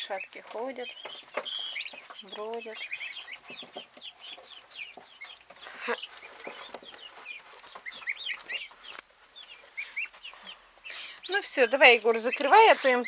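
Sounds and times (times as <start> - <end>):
turkey poults peeping: 0.0 - 13.0
soft clicks in litter: 0.2 - 3.1.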